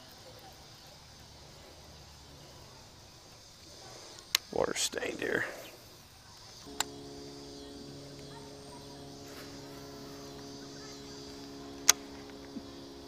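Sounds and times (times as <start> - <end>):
faint steady hum: 5.9 - 13.0.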